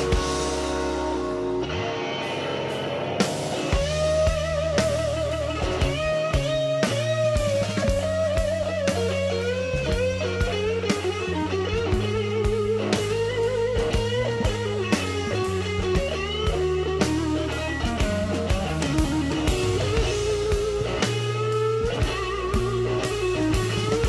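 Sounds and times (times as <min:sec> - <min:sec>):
steady drum beat: 0:00.0 - 0:01.4, 0:03.0 - 0:24.0
bass line: 0:00.0 - 0:01.9, 0:03.1 - 0:24.0
electric guitar lead: 0:00.0 - 0:24.0.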